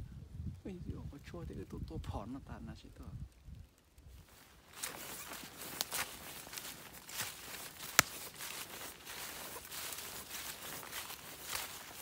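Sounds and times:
footsteps crunching dry leaves: 4.1 - 12.0
loud twig snap: 5.2 - 8.5.

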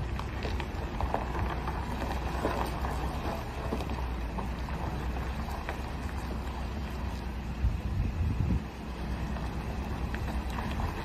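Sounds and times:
truck diesel engine rumbling: 0.0 - 11.0
tyres crackling on gravel: 0.0 - 11.0
wind noise on microphone: 6.0 - 11.0.

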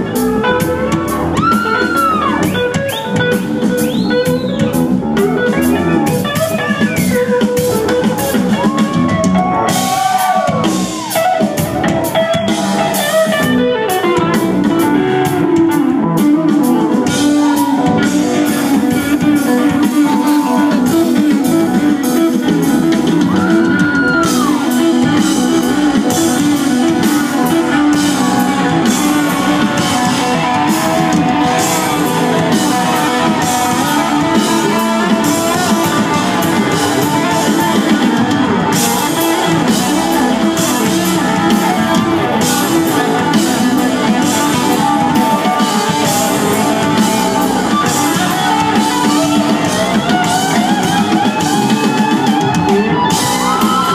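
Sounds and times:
rock band playing loudly: 0.0 - 53.9
bent guitar notes: 11.5 - 53.9.

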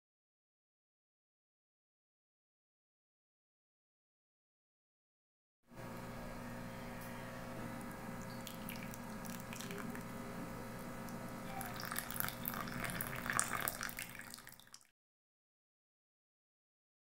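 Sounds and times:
steady low hum: 5.7 - 14.1
hot water poured into mug: 8.2 - 10.1, 11.6 - 14.9.

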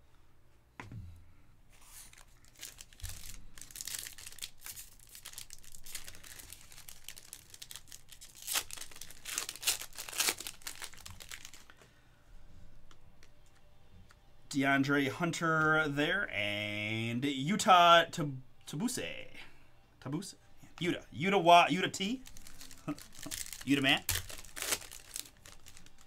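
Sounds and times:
wrapper tearing and crinkling: 1.9 - 11.8, 22.2 - 26.0.

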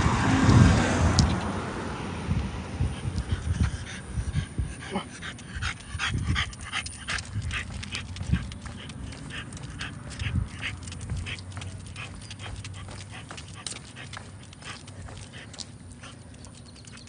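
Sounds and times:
dog panting: 2.8 - 17.0.

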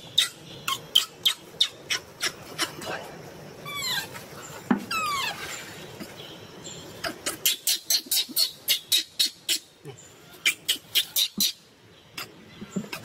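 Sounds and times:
baby monkey sharp cries: 0.0 - 2.8, 3.6 - 4.2, 4.9 - 5.5, 7.0 - 9.7, 10.4 - 11.6
baby monkey squealing: 0.0 - 2.8, 3.6 - 4.2, 4.9 - 5.5, 7.0 - 9.7, 10.4 - 11.6.

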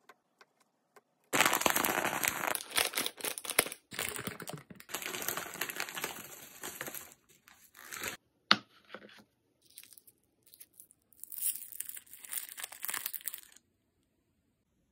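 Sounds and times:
plastic bag and candy wrappers rustling: 1.4 - 8.2, 11.2 - 13.6
twist wrapper crinkling open: 1.4 - 8.2, 9.7 - 13.6.

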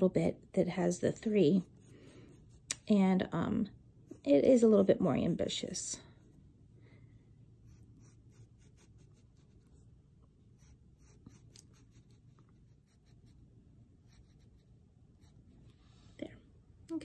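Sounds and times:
pencil scratching on paper: 0.7 - 3.4, 4.0 - 6.6, 7.6 - 9.9, 10.5 - 15.8.

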